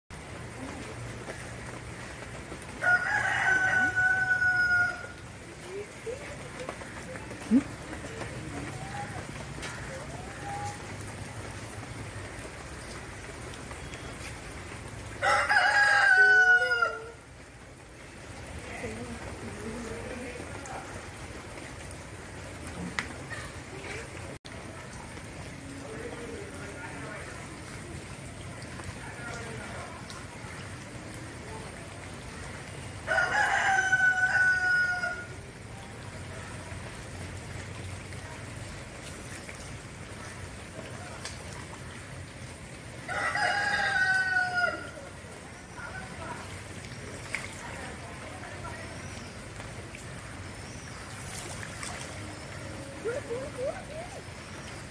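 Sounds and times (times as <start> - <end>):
rain pattering: 0.1 - 54.9
rooster crowing: 2.8 - 5.2, 15.2 - 17.2, 33.1 - 35.4, 43.1 - 45.1.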